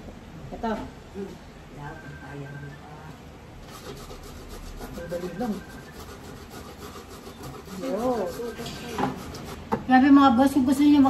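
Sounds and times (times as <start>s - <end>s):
root rasping on metal grater: 3.7s - 9.7s.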